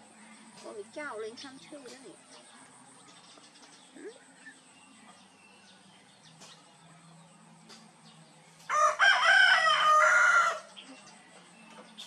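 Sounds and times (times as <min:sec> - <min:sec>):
rooster crowing: 0:08.7 - 0:10.7.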